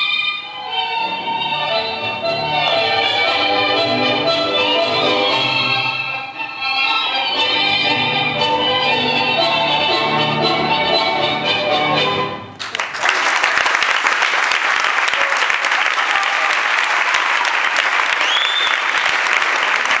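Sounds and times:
tango music: 0.0 - 12.6
audience applause: 12.6 - 20.0.

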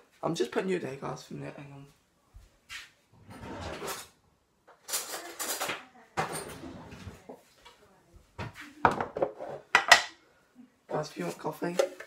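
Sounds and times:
cupboard opening and closing: 3.1 - 4.2, 4.8 - 7.3
kitchen items being moved: 3.2 - 7.8, 8.4 - 10.1.

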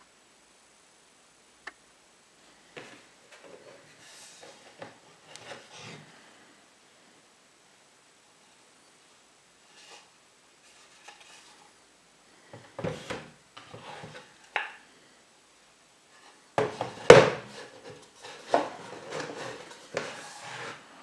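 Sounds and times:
wood sliding and rubbing: 2.8 - 6.2, 12.6 - 14.7, 16.6 - 21.0
wooden trays knocking on table: 16.6 - 17.6.

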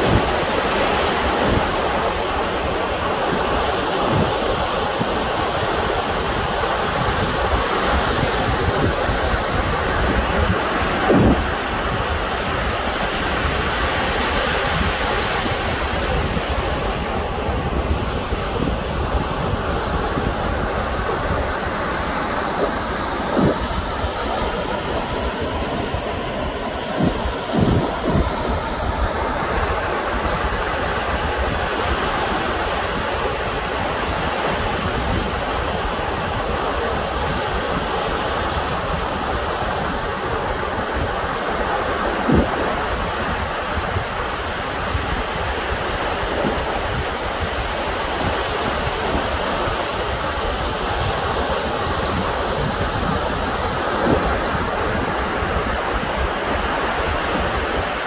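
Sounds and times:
surf rushing: 0.0 - 58.0
wind on microphone: 0.0 - 58.0
low thumps: 22.6 - 28.9.

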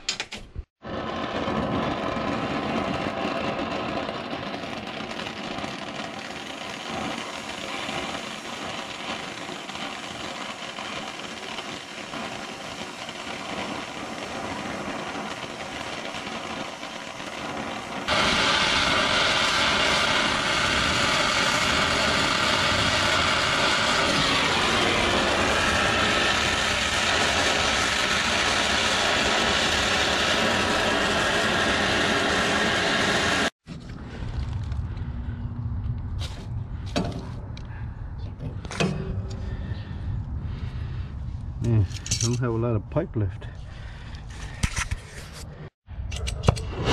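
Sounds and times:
torch flame hissing: 0.7 - 33.6.

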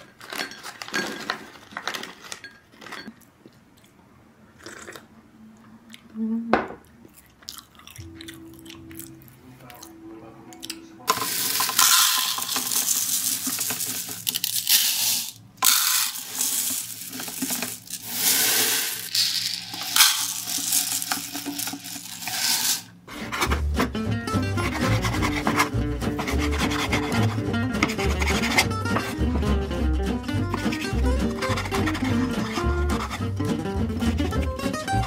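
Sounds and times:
rice pouring into plastic bowl: 11.1 - 22.9.

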